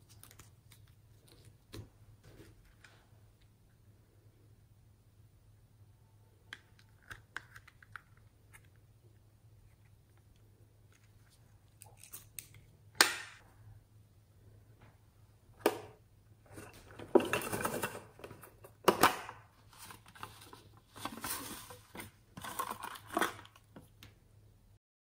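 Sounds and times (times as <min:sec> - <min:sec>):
small contents rattling: 0:16.5 - 0:19.2, 0:19.8 - 0:23.9.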